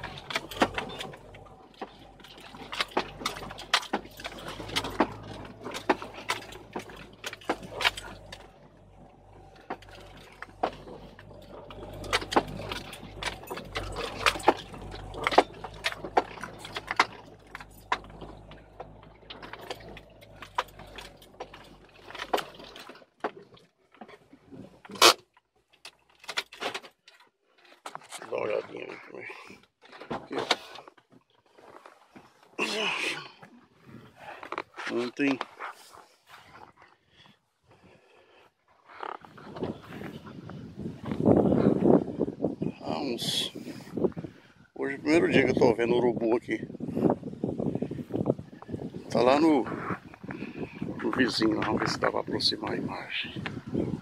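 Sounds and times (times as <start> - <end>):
low steady rumble: 0.0 - 24.9, 39.2 - 54.0.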